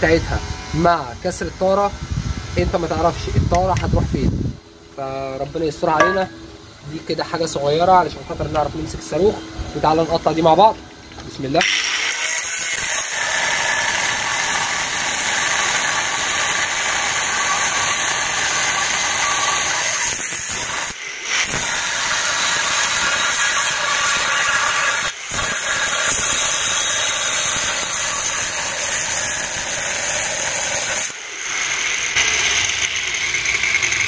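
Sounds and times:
angle grinder cutting steel: 11.6 - 34.0.

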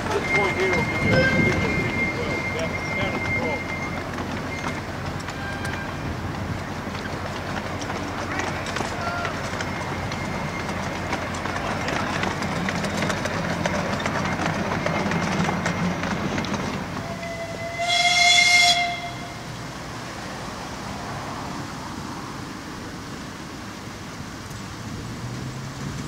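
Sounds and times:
high train toot: 0.0 - 6.7, 8.2 - 19.6
wheels clicking: 0.0 - 19.9
miniature train wagons rumbling: 0.0 - 26.0.

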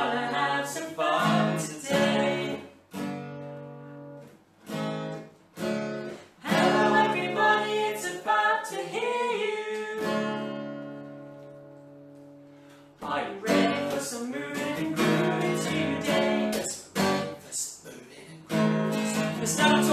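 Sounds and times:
voices singing a children's song: 0.0 - 2.7, 6.4 - 10.2, 13.0 - 18.4, 19.0 - 19.9
acoustic guitar strumming: 0.0 - 17.5, 18.4 - 19.9.

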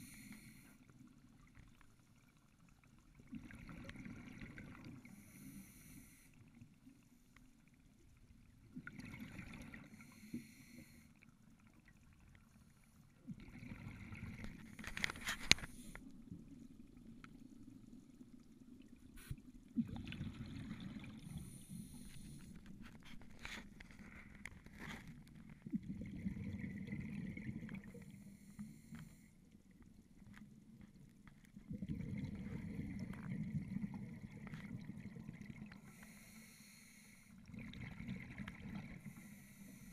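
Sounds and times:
diver breathing through regulator: 5.1 - 6.4, 21.2 - 22.6, 35.8 - 37.4, 38.9 - 39.9.

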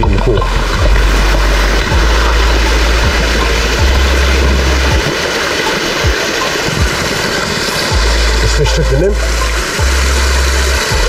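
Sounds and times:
low rumble on microphone: 0.0 - 5.2
waterfall and brook rushing: 0.0 - 11.0.

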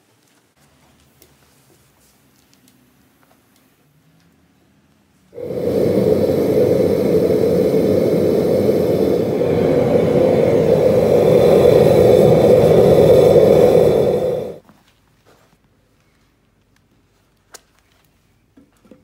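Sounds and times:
propane burner roaring: 5.4 - 14.6.

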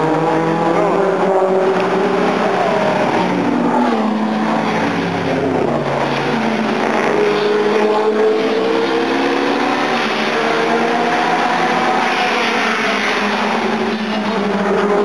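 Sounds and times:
racing car engines accelerating past: 0.0 - 15.0.

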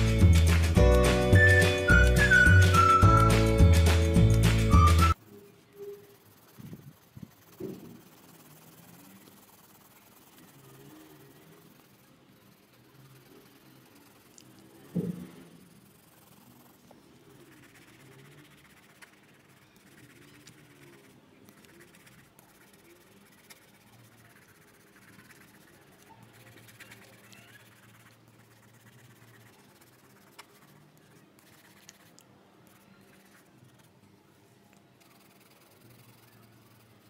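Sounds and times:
pencil scratching on paper: 0.0 - 34.0, 34.9 - 37.0
light pencil ticks: 6.3 - 14.9, 15.8 - 33.9.

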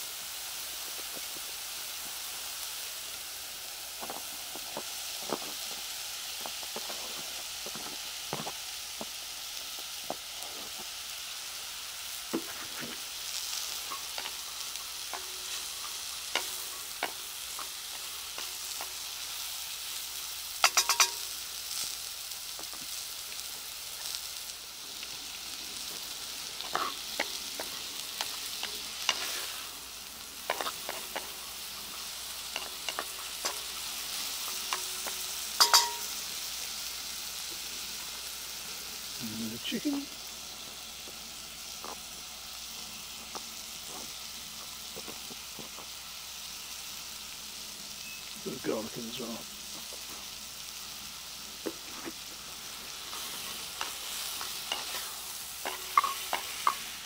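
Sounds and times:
onions and bacon sizzling: 0.0 - 57.0.

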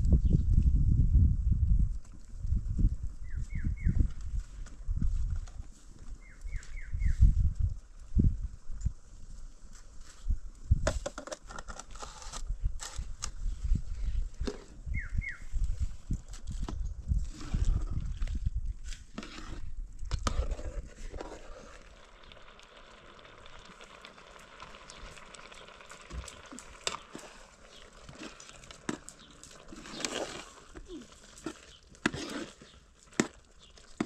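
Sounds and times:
wood fire crackling: 15.5 - 34.0
ladle stirring simmering pot: 16.1 - 34.0.

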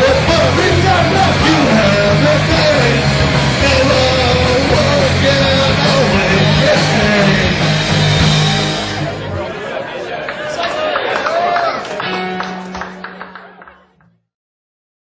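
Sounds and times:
electric guitar: 0.0 - 9.5, 11.6 - 14.2
live rock band: 0.0 - 9.5, 11.8 - 13.7
low bass notes: 0.0 - 9.5.

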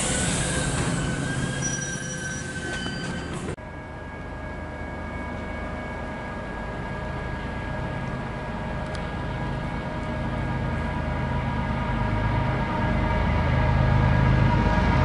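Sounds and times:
train engine and rail rumble: 0.0 - 15.0.

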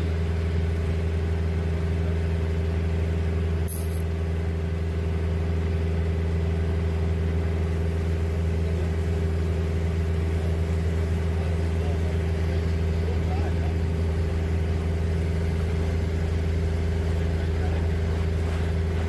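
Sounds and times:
boat engine hum: 0.0 - 19.0
brief high hiss: 3.7 - 4.1.

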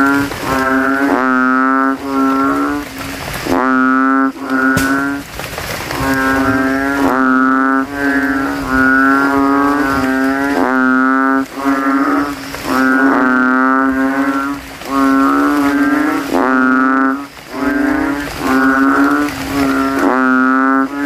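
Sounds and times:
frogs calling: 0.0 - 21.0.

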